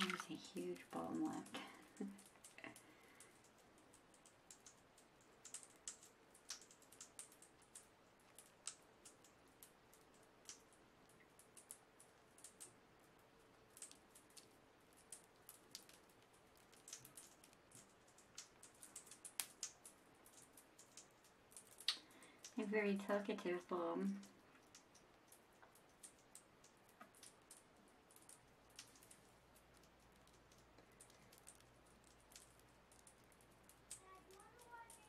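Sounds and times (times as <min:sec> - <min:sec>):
bath bomb fizzing in water: 0:00.0 - 0:03.8.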